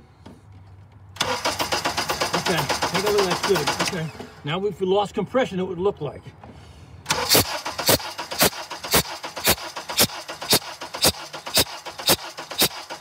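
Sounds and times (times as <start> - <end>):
engine cranking on starter: 1.2 - 4.4, 7.1 - 13.0.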